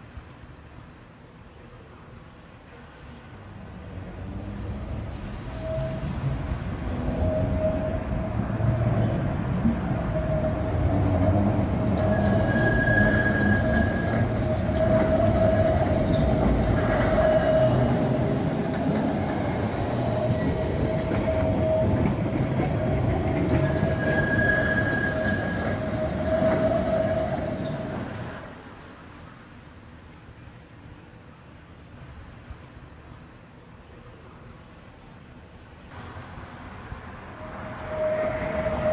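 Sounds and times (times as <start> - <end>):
rail rumble: 2.7 - 30.1, 35.8 - 38.9
tram motor tone: 3.8 - 28.5, 37.0 - 38.9
wheel squeal: 5.4 - 28.4.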